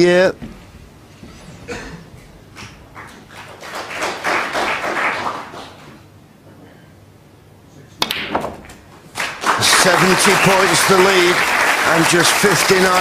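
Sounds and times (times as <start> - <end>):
audience applause: 3.0 - 5.8, 9.2 - 13.0
cue tip striking ball: 8.0 - 8.8.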